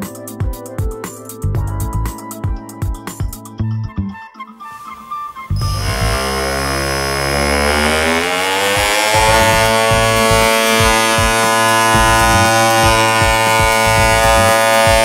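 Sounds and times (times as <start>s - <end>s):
uneven low knocking: 5.6s - 15.0s
vibrating motor buzz: 5.6s - 15.0s.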